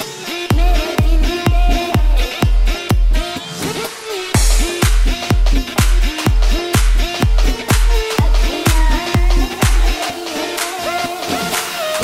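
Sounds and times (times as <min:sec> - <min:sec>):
dance music: 0:00.0 - 0:12.0
kick drum: 0:00.5 - 0:03.2, 0:04.4 - 0:10.0.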